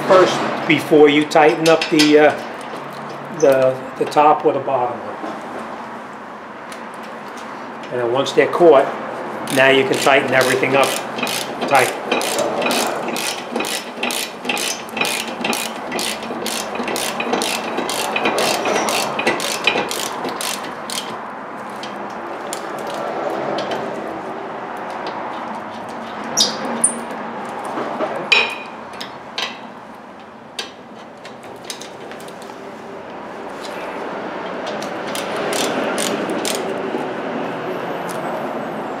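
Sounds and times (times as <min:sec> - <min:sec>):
ratchet wrench clicking: 0:09.5 - 0:21.2, 0:34.8 - 0:36.7.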